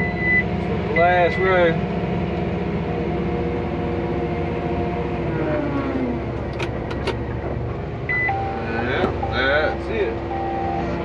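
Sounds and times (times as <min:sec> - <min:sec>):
tractor engine running: 0:00.0 - 0:11.0
short high beep: 0:10.3 - 0:10.9.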